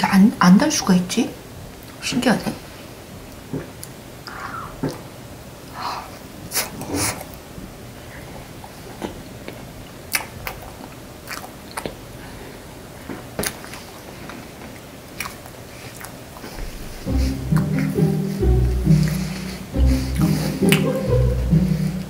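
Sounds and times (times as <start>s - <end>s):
chewing soft cake: 8.0s - 17.8s.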